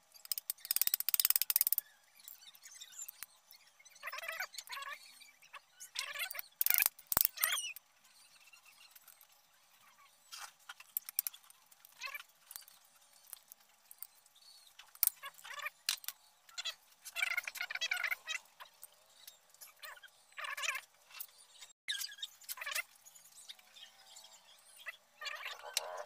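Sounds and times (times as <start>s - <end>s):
metal gun parts clicking: 0.2s - 1.8s, 6.6s - 7.5s, 10.9s - 11.5s
poultry calling: 25.2s - 26.0s.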